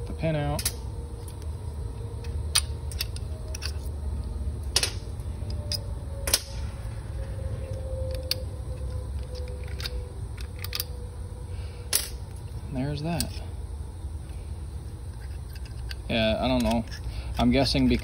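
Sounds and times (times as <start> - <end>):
steady low hum: 0.0 - 18.0
metallic clicks of small steel parts: 0.6 - 1.5, 2.2 - 3.9, 4.6 - 6.6, 7.6 - 11.1, 11.9 - 13.4, 15.0 - 18.0.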